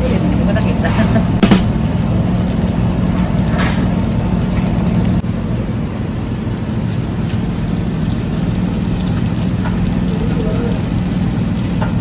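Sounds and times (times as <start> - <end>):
low hum: 0.1 - 10.2
meat sizzling on a grill plate: 5.5 - 12.0.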